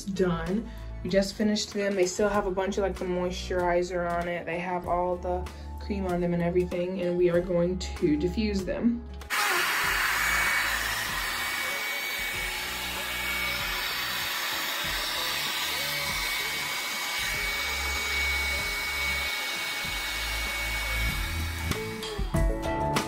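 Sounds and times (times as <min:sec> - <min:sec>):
hair dryer running: 0:09.3 - 0:22.3.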